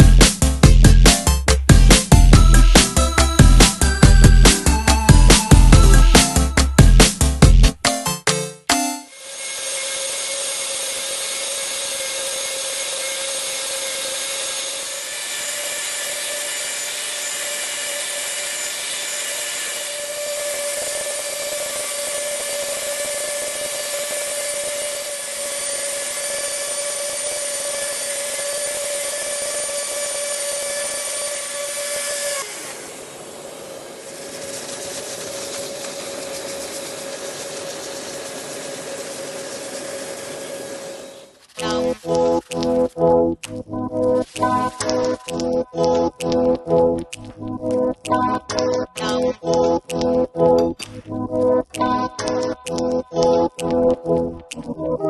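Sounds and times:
dust extraction vacuum: 0:09.1 - 0:42.9
router spindle cutting plastic: 0:09.1 - 0:43.1, 0:43.9 - 0:55.0.

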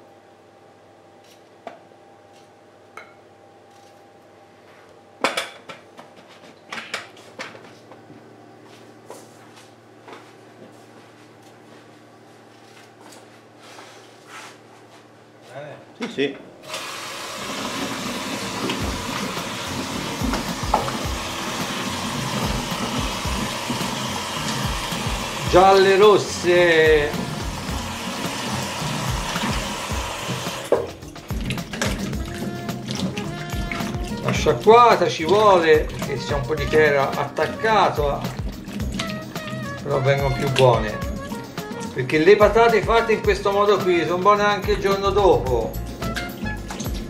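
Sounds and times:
tap water running: 0:16.6 - 0:43.8, 0:44.5 - 0:47.0
water splashing: 0:16.8 - 0:36.9, 0:38.0 - 0:40.9, 0:46.0 - 0:47.0.

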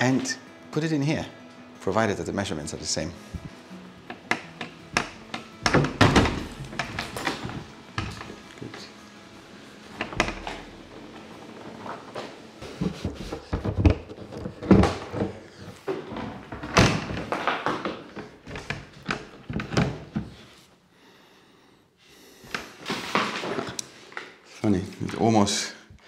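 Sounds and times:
wooden door knocking on floor: 0:04.1 - 0:08.3.

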